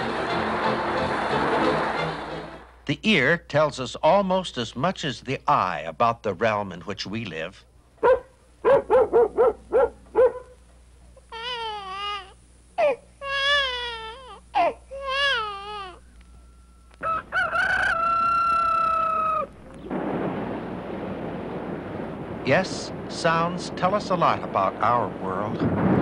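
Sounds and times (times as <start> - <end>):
rushing noise: 0.0 - 2.9, 19.9 - 26.0
baby crying: 11.3 - 16.1
long steady held tone: 16.0 - 17.0.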